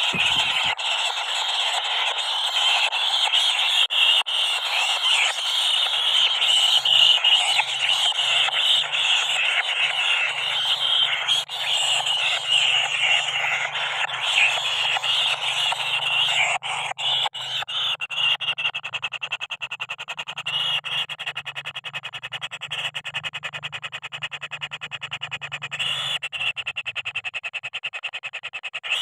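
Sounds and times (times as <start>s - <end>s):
nestlings begging chatter: 0.0s - 19.1s.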